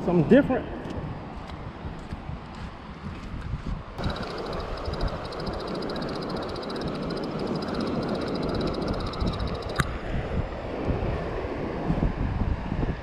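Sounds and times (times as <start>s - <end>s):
wind buffeting microphone: 0.7s - 13.0s
fast high-pitched ticking: 4.0s - 9.8s
sharp click: 8.6s - 9.9s.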